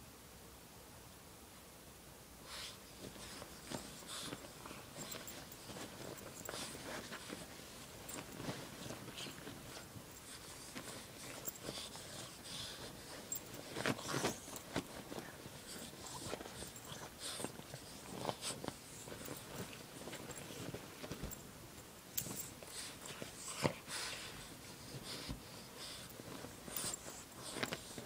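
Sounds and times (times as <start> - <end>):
dog scratching bed sheets: 2.5 - 21.4
fabric rustling: 2.6 - 28.0.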